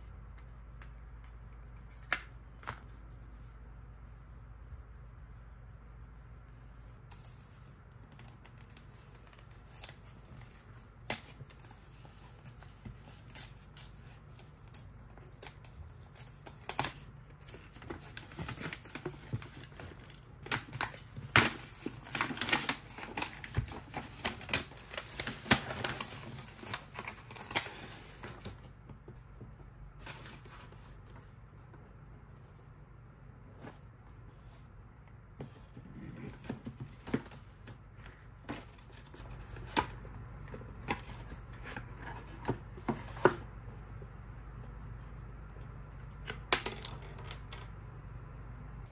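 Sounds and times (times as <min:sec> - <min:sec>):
wrapping paper rustling and crinkling: 0:07.2 - 0:28.6.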